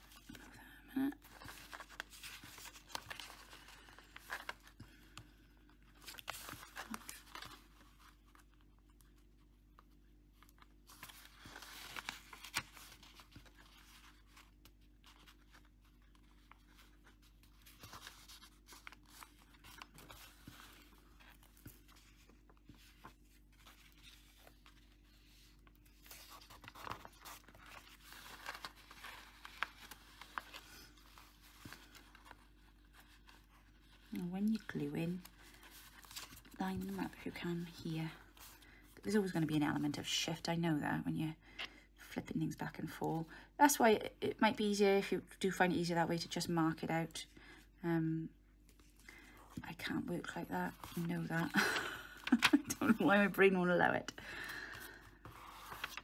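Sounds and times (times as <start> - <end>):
stiff paper cards rustling: 1.2 - 9.4, 10.3 - 38.8, 50.7 - 53.4, 54.2 - 56.0.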